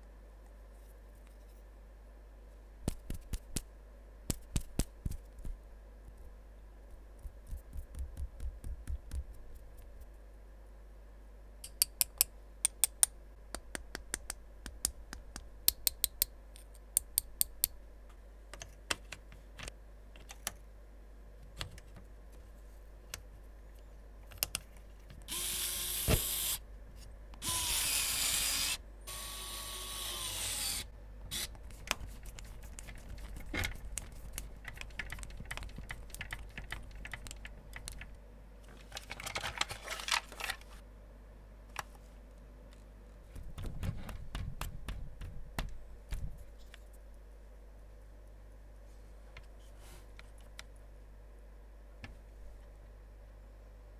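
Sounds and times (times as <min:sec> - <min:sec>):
electric screwdriver whining: 0:25.3 - 0:26.6, 0:27.4 - 0:31.5
plastic parts clicking: 0:38.7 - 0:40.7.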